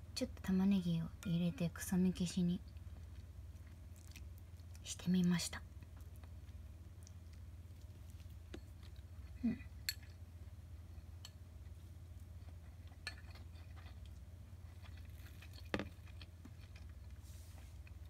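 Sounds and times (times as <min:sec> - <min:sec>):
steady low hum: 0:00.0 - 0:18.0
chopsticks and bowl clinking: 0:08.5 - 0:10.2, 0:12.4 - 0:14.1.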